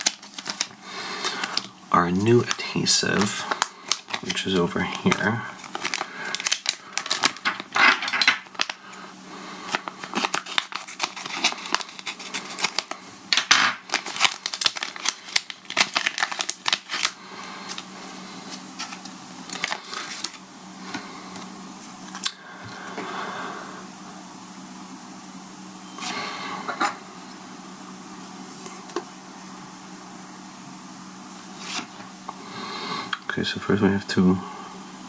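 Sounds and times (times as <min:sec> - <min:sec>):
plastic bag crinkling: 0:00.0 - 0:20.4
steady low hum: 0:00.0 - 0:35.0.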